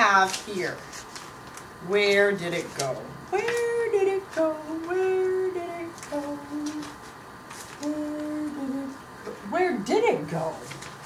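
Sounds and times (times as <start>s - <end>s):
woman humming: 7.8s - 9.4s.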